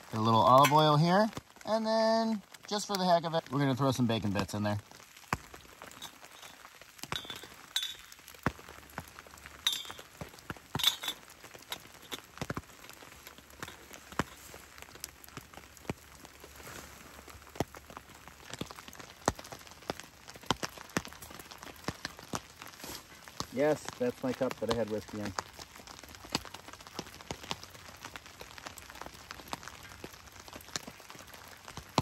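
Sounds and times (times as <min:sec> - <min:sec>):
campfire crackling and popping: 0:00.0 - 0:32.0
rain: 0:00.0 - 0:32.0
water drips: 0:02.4 - 0:16.6
light clinks: 0:05.9 - 0:08.2, 0:09.7 - 0:10.1, 0:10.7 - 0:12.3.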